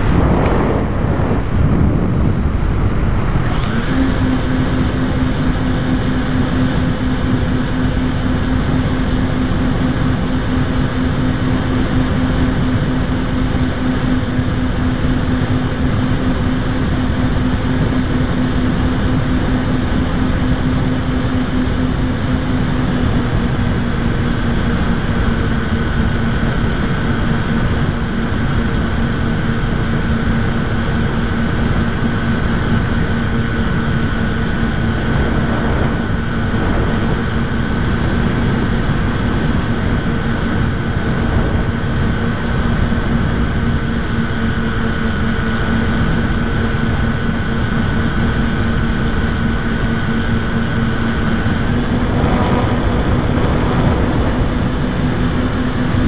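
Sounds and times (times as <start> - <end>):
wind rush: 0.0 - 20.2, 32.3 - 47.0, 49.0 - 56.0
electric motor and propeller: 0.0 - 56.0
high whine: 0.0 - 56.0.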